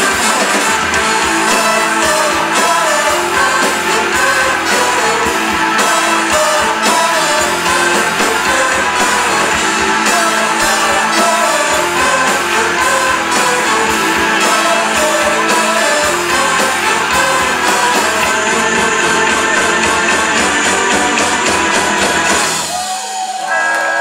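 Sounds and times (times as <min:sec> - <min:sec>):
brass horns: 0:00.0 - 0:22.6
steady drum beat: 0:00.0 - 0:22.9
electric guitars: 0:00.0 - 0:24.0.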